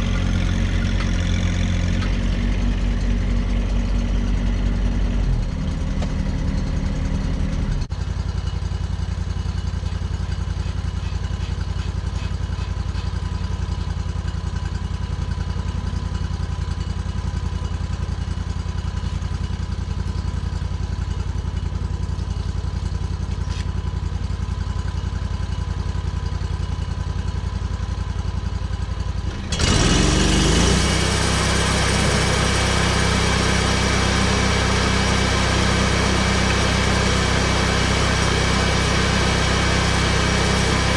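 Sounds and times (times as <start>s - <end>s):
gasoline engine idling and revving: 0.0s - 40.9s.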